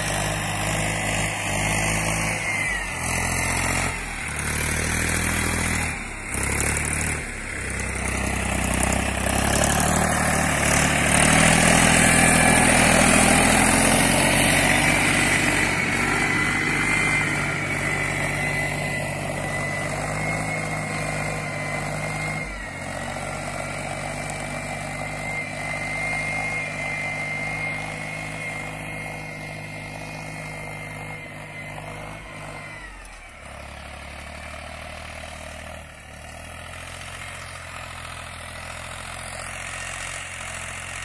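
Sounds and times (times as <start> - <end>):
tractor engine running: 0.0 - 41.0
high whine: 7.2 - 33.1.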